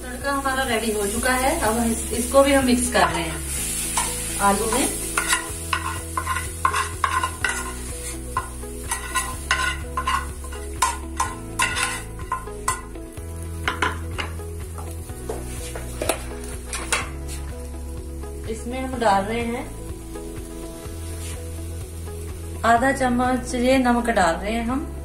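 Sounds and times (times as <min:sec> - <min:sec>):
metal spoon scraping frying pan: 0:03.0 - 0:12.9.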